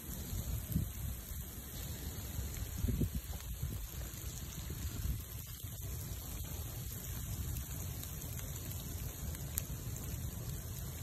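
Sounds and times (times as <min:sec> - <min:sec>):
bonfire burning: 0:00.0 - 0:11.0
falling rain: 0:00.0 - 0:11.0
fire crackles: 0:00.0 - 0:11.0.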